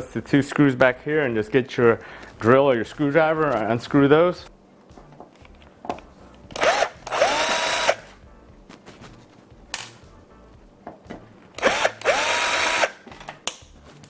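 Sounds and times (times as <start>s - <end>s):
cordless drill whine: 6.6s - 8.1s, 11.6s - 13.0s.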